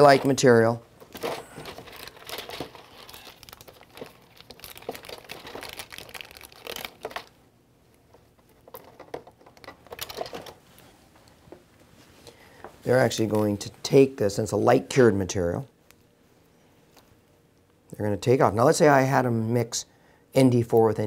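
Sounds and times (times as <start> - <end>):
plastic wrapping crinkling: 1.0 - 7.4.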